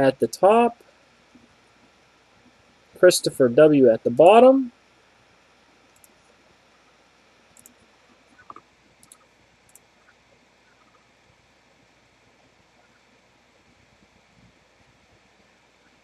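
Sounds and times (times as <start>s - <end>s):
low background hiss: 0.0s - 16.0s
computer mouse clicks: 5.9s - 6.3s, 7.5s - 11.1s.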